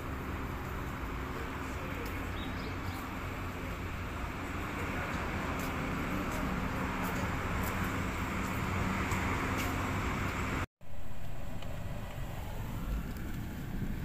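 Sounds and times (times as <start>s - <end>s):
car engine hum and road noise: 0.0s - 14.0s.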